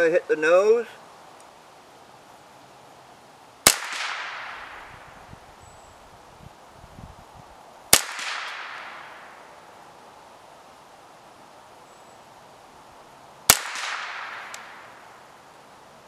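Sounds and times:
rifle shots with echo: 3.6 - 5.1, 7.9 - 9.4, 13.5 - 15.0.

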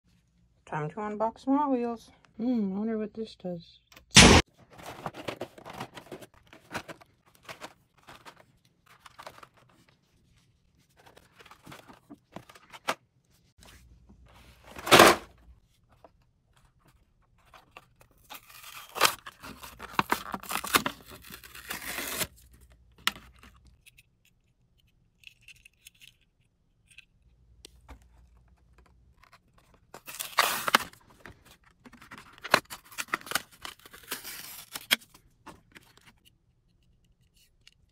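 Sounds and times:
card and plastic crinkling: 4.5 - 13.0, 14.4 - 36.3
packaging tearing: 18.2 - 22.4, 29.9 - 31.1, 31.9 - 35.1.

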